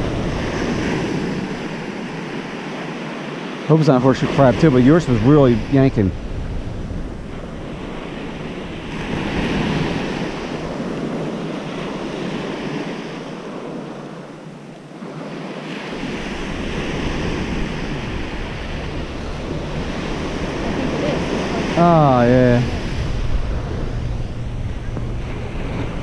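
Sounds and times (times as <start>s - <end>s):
wind buffeting microphone: 0.0s - 3.3s, 4.2s - 14.4s, 15.0s - 26.0s
surf washing onto beach: 0.0s - 26.0s.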